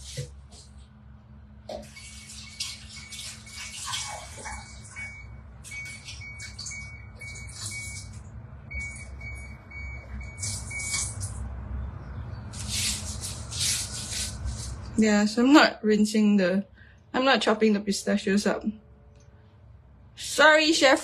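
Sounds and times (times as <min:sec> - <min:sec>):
tap water running in spurts: 0:01.6 - 0:09.4, 0:10.2 - 0:11.5, 0:12.5 - 0:15.0.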